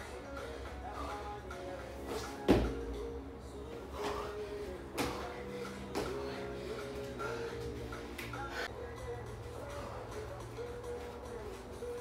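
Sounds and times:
background music: 0.0s - 12.0s
body thudding onto exercise mat: 2.4s - 2.8s.

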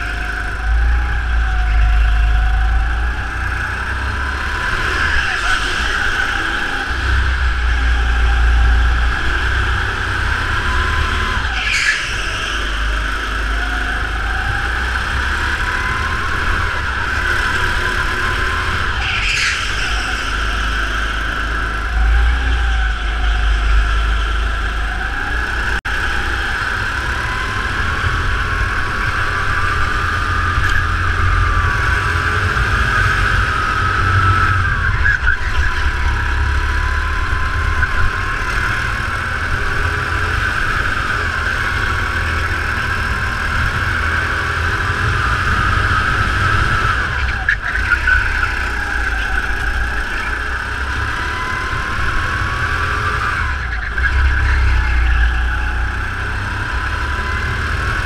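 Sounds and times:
kart engine revving: 0.0s - 58.0s
tyre squeals: 4.6s - 13.0s, 18.8s - 24.3s.

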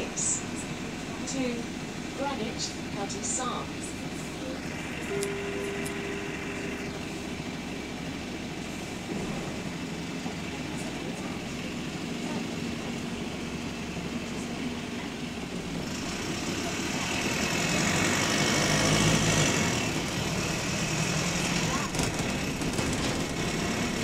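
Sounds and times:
bus engine running: 0.0s - 24.0s
engine rods clattering: 21.4s - 24.0s.

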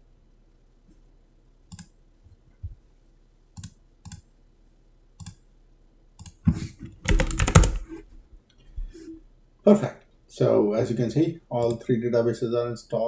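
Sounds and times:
computer mouse clicking: 1.7s - 2.0s, 3.6s - 4.3s, 5.2s - 5.4s, 6.2s - 6.4s, 7.0s - 8.0s, 11.6s - 11.8s.

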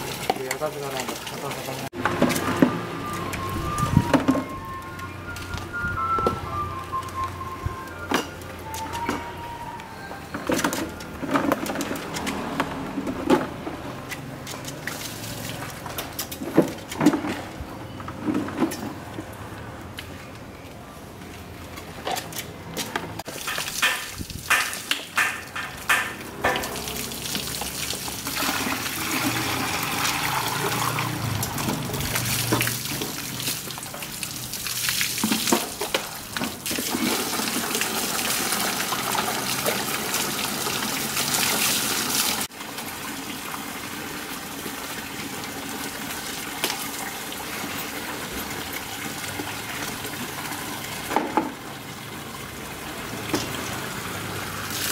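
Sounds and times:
water splashing and pouring: 0.0s - 4.5s, 14.2s - 17.0s, 23.2s - 54.9s.

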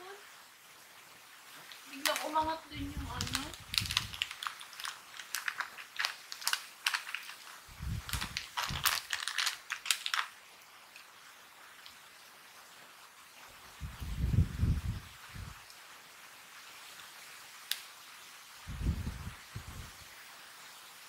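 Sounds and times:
snack bag crinkling: 1.7s - 2.4s, 3.1s - 11.1s
chips falling into glass bowl: 3.2s - 7.5s, 8.1s - 10.4s.

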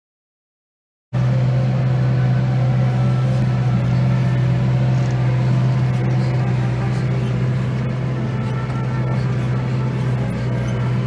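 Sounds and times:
tractor engine droning: 1.2s - 11.0s.

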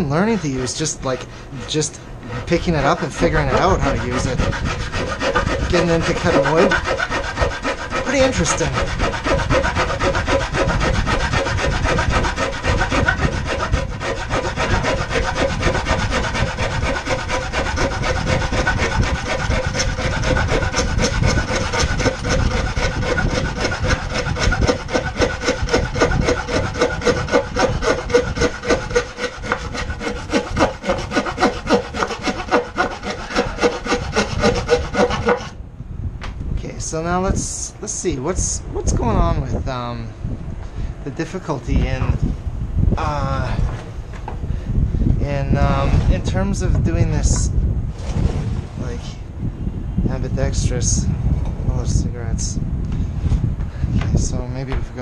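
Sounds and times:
hand saw cutting wood: 0.0s - 35.6s.

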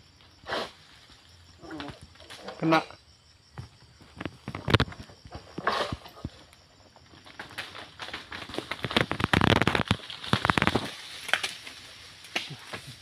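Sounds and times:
dry palm fronds crackling and snapping: 4.2s - 13.0s.

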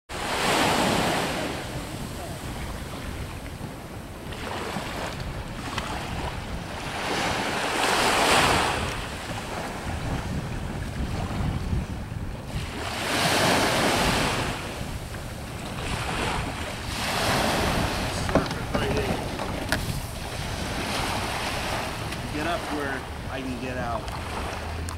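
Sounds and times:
small waves washing on sand: 0.1s - 24.9s
wind rumbling on microphone: 0.1s - 24.9s.

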